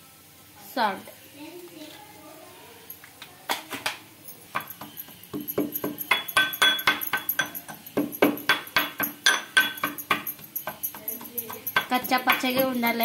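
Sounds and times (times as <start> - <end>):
metal pestle pounding in mortar: 4.5 - 13.0.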